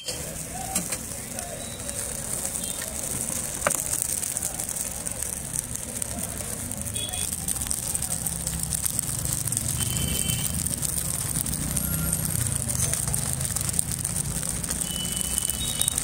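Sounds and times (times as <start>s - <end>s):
faint voices: 0.0s - 16.0s
low rumble of traffic: 0.0s - 16.0s
vehicle horn beeps: 9.8s - 10.5s, 14.8s - 16.0s.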